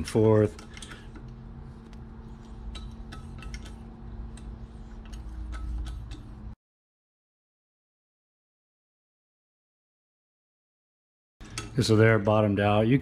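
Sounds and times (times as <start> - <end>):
low steady hum: 0.0 - 6.6.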